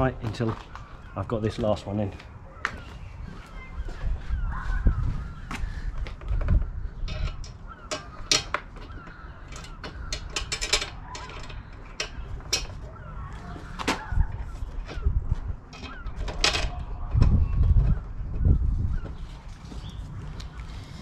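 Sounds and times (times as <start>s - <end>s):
faint birds calling: 0.0s - 21.0s
metal bolt and washers clinking: 7.0s - 8.8s, 9.5s - 12.8s, 15.7s - 16.9s.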